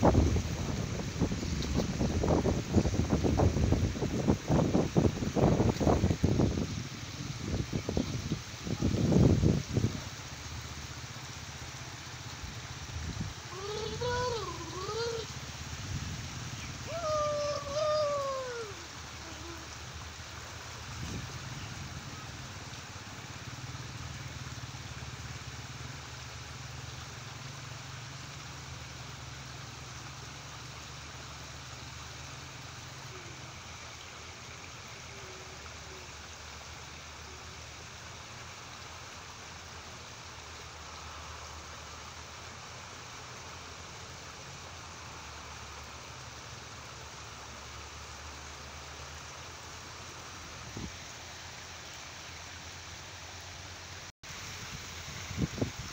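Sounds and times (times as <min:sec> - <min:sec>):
stream water running over stones: 0:00.0 - 0:55.9.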